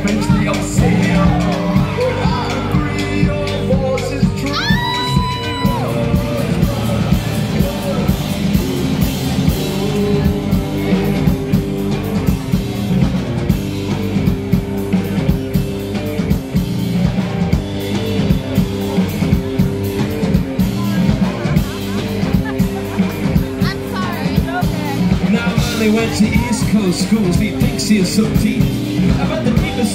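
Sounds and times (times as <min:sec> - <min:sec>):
drum kit: 0:00.0 - 0:29.9
electric guitar: 0:00.0 - 0:29.9
live band playing: 0:00.0 - 0:29.9.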